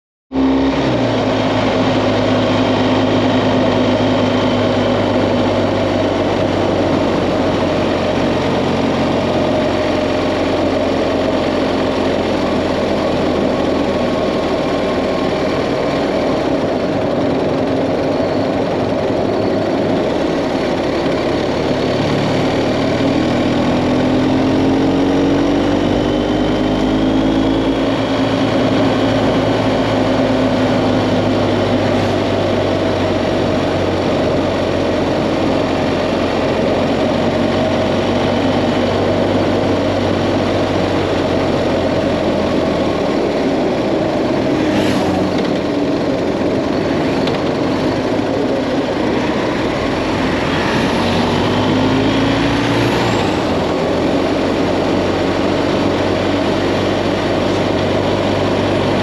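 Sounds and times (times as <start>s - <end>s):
motorcycle engine running: 0.3s - 59.0s
road noise: 0.3s - 59.0s.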